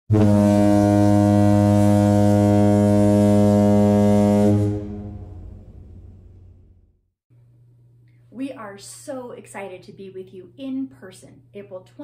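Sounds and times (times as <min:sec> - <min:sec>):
ship's horn blast: 0:00.1 - 0:06.7.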